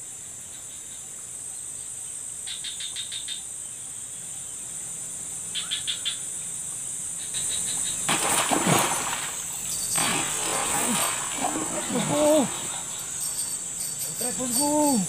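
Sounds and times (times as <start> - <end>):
insects buzzing: 0.0 - 15.0
rapid chirping: 7.1 - 15.0
fish splashing at water surface: 7.9 - 13.8.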